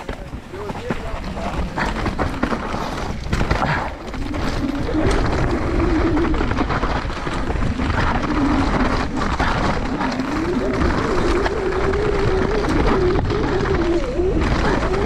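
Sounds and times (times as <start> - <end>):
bike rattling and knocking: 0.0 - 15.0
wind buffeting microphone: 0.0 - 15.0.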